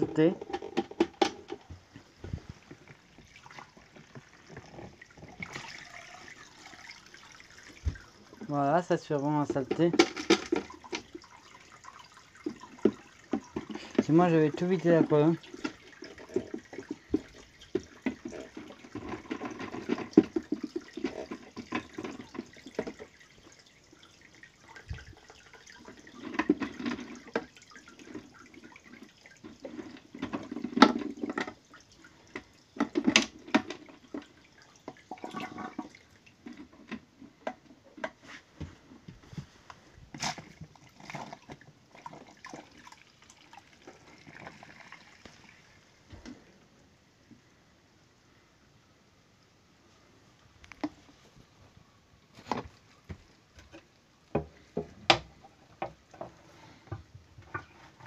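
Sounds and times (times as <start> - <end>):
water splashing and gurgling: 0.0 - 37.0.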